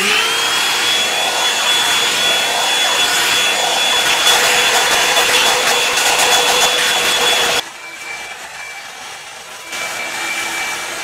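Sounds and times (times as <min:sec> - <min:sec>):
hair dryer running: 0:00.0 - 0:11.0.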